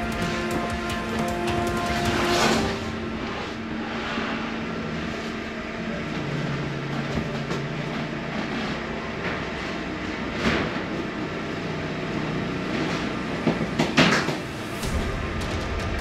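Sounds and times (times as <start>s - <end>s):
music: 0.0s - 4.6s, 13.9s - 16.0s
vehicle running noise: 0.0s - 16.0s.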